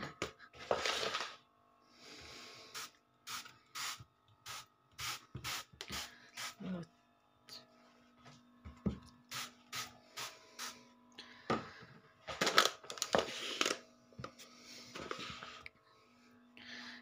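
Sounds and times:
spray bottle hissing sprays: 2.8s - 6.6s.

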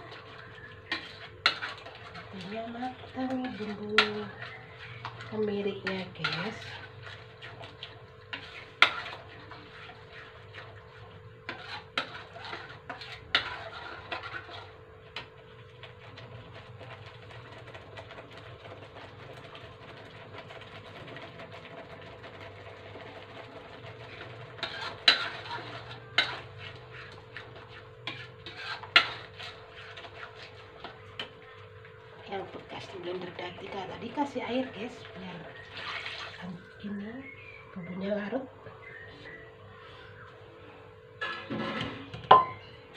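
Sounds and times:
spatula scraping a wok: 0.0s - 19.4s, 22.2s - 31.6s, 32.4s - 36.4s, 41.2s - 42.2s
faint sizzle: 0.0s - 42.9s.

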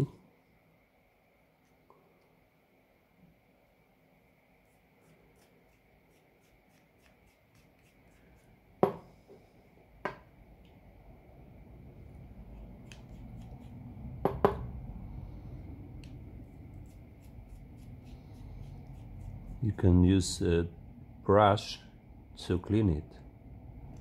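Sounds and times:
low rumble: 13.6s - 16.7s.

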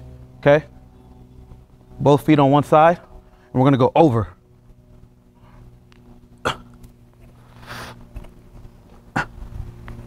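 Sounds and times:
man breathing hard: 7.4s - 8.0s
sharp puffs of breath: 7.6s - 8.0s.

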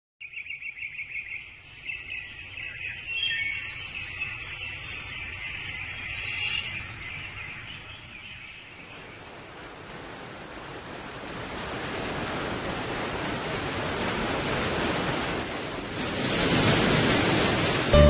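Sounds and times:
birds chirping: 0.2s - 9.4s
rushing surf-like noise: 5.3s - 18.0s.

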